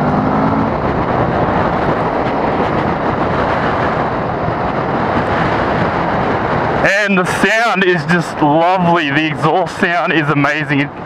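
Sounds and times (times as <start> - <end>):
motorcycle engine accelerating: 0.0 - 6.8
wind and road noise: 0.0 - 11.0.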